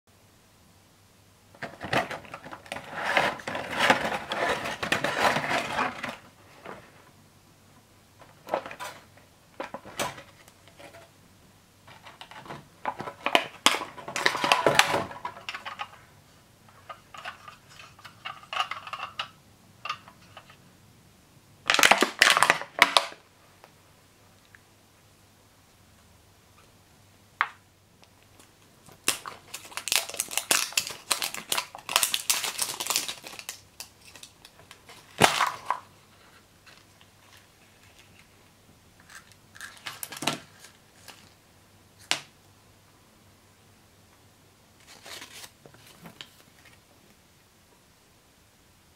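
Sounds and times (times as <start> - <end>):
plastic packaging crinkling: 11.9 - 16.0, 21.7 - 23.2, 28.4 - 35.9, 39.0 - 41.4, 44.8 - 46.8.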